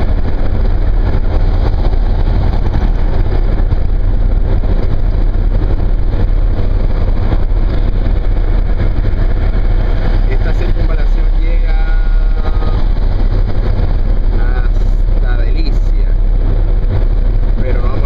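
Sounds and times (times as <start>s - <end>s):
car cruising interior rumble: 0.0s - 18.0s.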